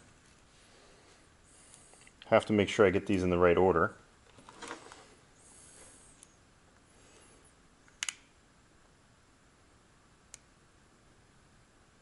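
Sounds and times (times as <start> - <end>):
small sharp clicks: 7.9 - 8.3, 10.3 - 10.5.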